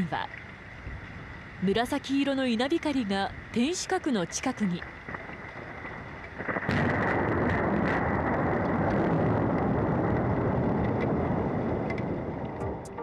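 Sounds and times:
thunder crack and rumble: 0:05.0 - 0:13.0.

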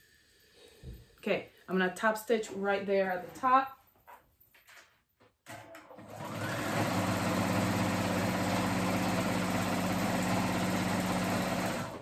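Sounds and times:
sewing machine stitching: 0:05.5 - 0:12.0.

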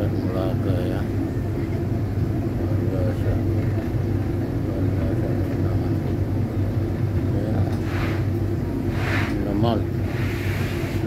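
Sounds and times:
ferry engines droning: 0:00.0 - 0:11.0.

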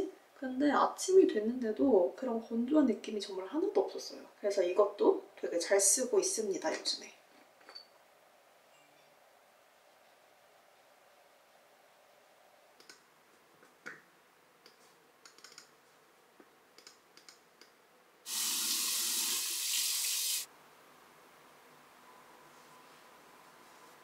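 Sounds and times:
water running from a tap: 0:18.3 - 0:20.5.

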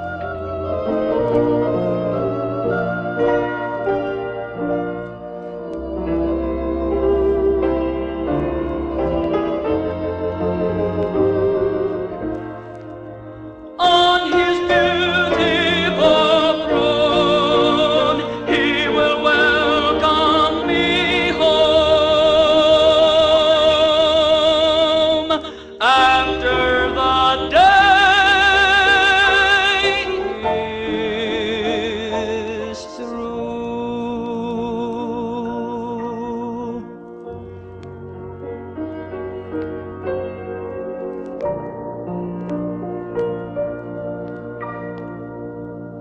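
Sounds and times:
organ and piano accompaniment: 0:00.0 - 0:46.0
tenor voice singing gospel: 0:13.8 - 0:37.0.

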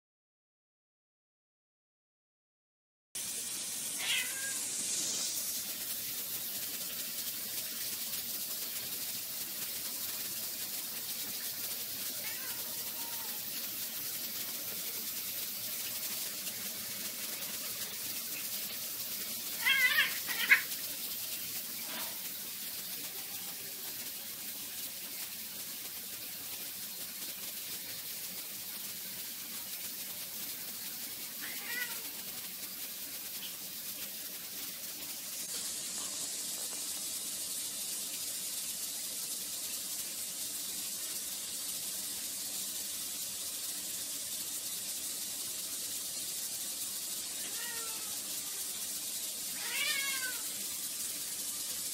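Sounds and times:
steady background hiss: 0:03.2 - 0:51.9
cat yowling: 0:04.0 - 0:04.6, 0:12.2 - 0:13.5, 0:19.6 - 0:20.7, 0:31.4 - 0:32.2, 0:47.4 - 0:48.6, 0:49.6 - 0:50.5.

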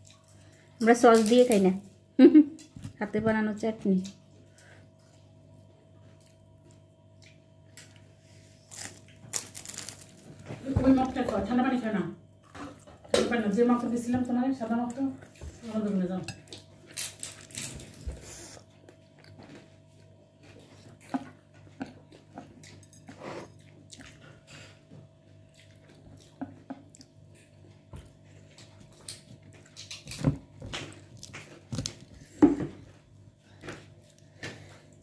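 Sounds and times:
person chewing bread: 0:00.0 - 0:00.7, 0:04.4 - 0:10.4, 0:16.4 - 0:35.0
faint steady hum: 0:00.0 - 0:35.0.

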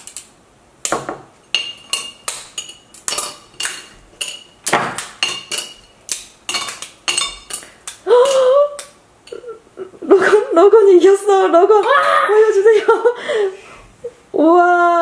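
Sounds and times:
sugar candy snapping and clicking: 0:06.0 - 0:09.0
woman exclaiming: 0:10.3 - 0:13.0, 0:14.4 - 0:15.0.

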